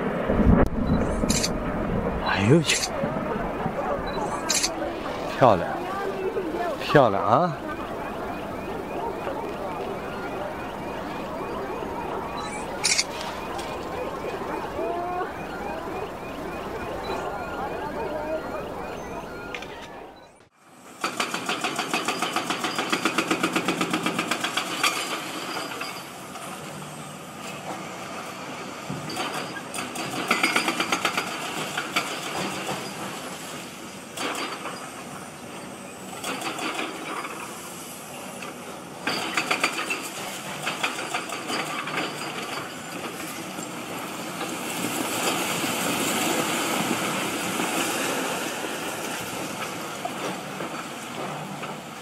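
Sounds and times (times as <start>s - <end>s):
excavator diesel engine running: 0.0s - 25.4s.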